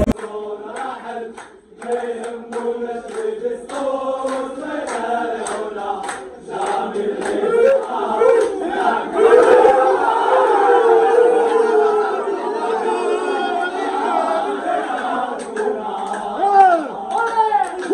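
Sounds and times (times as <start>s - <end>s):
sharp hand claps: 0.0s - 8.6s, 15.4s - 17.9s
crowd singing a chant: 0.0s - 17.9s.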